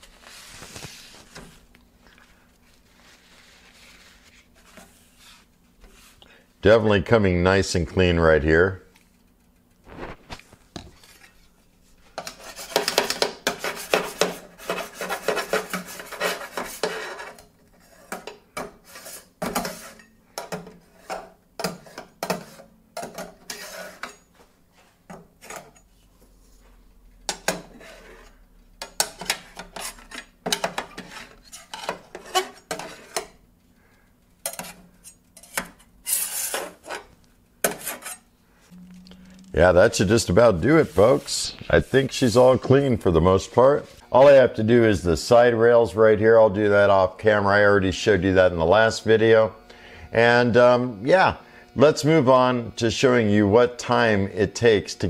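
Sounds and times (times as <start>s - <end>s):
scraping and scrubbing metal griddle: 12.2s - 20.1s, 27.3s - 33.4s, 35.4s - 37.1s, 37.7s - 38.3s.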